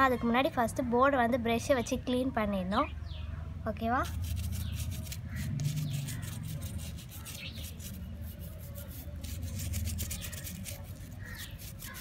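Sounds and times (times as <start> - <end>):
toothbrush scrubbing circuit board: 4.1 - 12.0.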